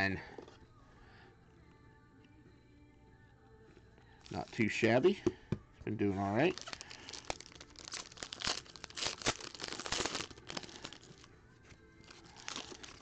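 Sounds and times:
foil wrapper crinkling and tearing: 6.4s - 11.3s, 12.0s - 13.0s.

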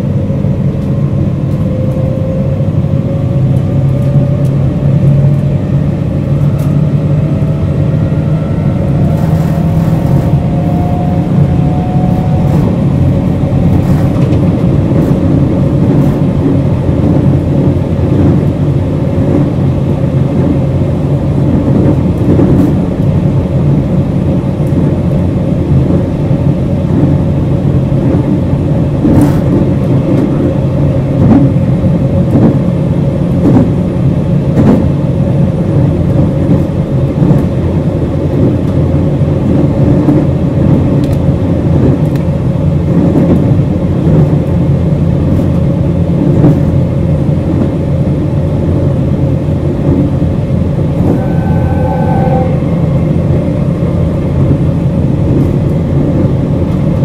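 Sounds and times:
traction equipment hum: 0.0s - 57.0s
train wheels rumbling on rail: 0.0s - 57.0s
sharp clicks from track: 41.0s - 41.2s.

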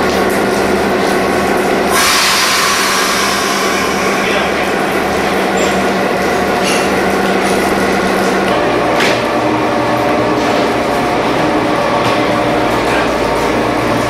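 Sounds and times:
diesel locomotive idling: 0.0s - 14.0s
loud hiss of air: 1.9s - 4.6s.

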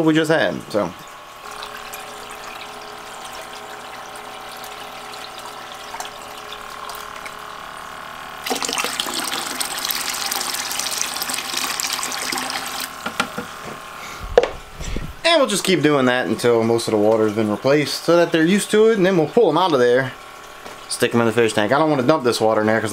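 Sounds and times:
pump hum: 0.0s - 22.9s
water trickling: 1.0s - 13.0s, 18.7s - 21.0s
water poured into plastic bucket: 8.4s - 13.0s.

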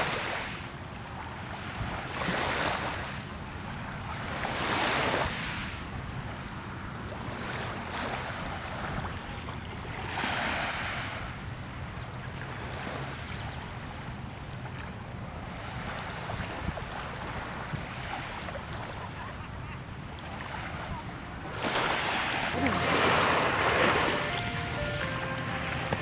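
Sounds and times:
waves washing on pebbles: 21.5s - 26.0s.

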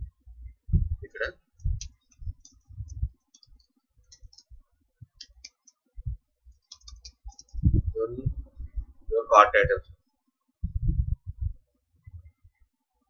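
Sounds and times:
typing on computer keyboard: 1.8s - 2.7s, 3.3s - 4.5s, 6.6s - 7.6s.

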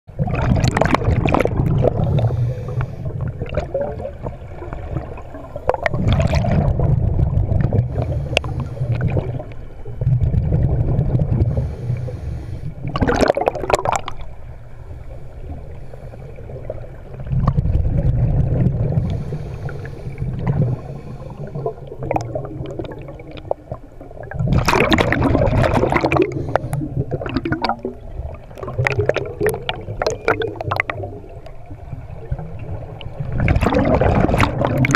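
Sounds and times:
exhaled bubbles rumbling underwater: 0.1s - 34.9s
regulator inhale hiss: 2.0s - 3.2s, 7.9s - 9.1s, 11.5s - 12.9s, 14.9s - 16.6s, 18.9s - 22.0s, 26.2s - 27.0s.

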